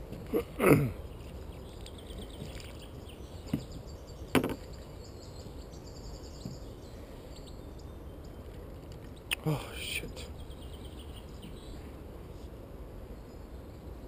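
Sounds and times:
pole creaking against wooden decking: 3.4s - 4.8s.

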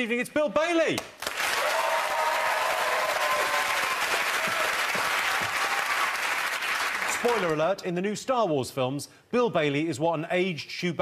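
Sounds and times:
audience applauding: 1.2s - 7.6s.

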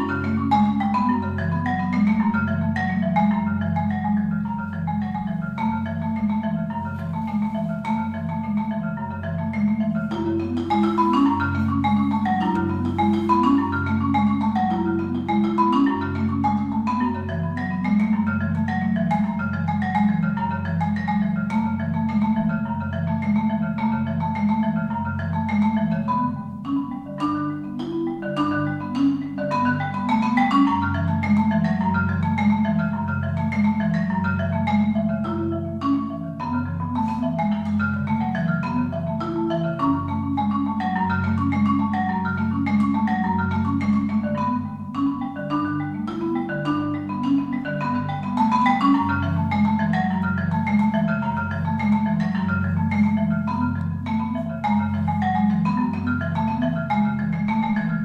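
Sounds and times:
marimba played with mallets: 0.0s - 58.0s.

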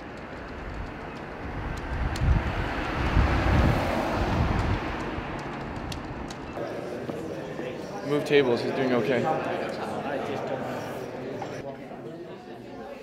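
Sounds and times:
car driving past: 1.4s - 6.6s.

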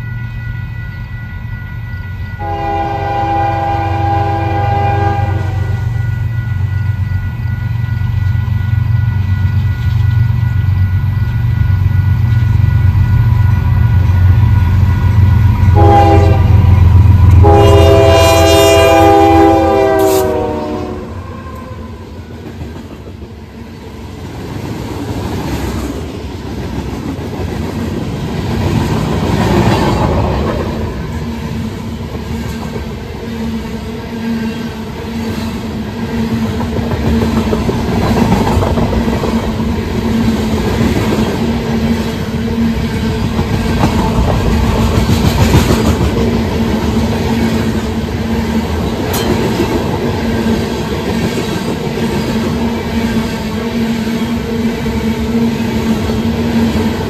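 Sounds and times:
diesel locomotives rumbling: 0.0s - 57.0s
train horn: 2.2s - 7.8s, 14.9s - 22.4s
train wheels clicking over rail joints: 36.3s - 42.3s, 43.0s - 52.7s.

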